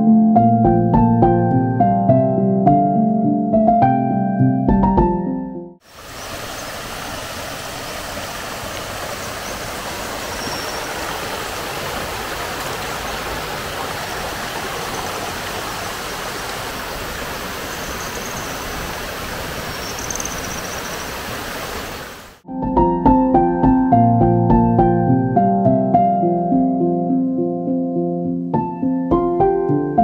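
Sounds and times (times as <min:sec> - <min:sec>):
stream running over rocks: 0:05.8 - 0:22.4
faint high chirps: 0:17.6 - 0:18.8, 0:19.7 - 0:21.2.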